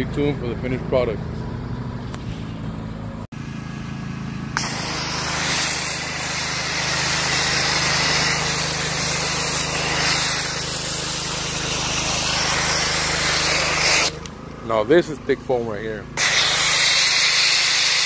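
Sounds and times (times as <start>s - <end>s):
pressure washer motor humming: 3.4s - 18.0s
spray hissing: 4.6s - 14.3s, 16.2s - 18.0s.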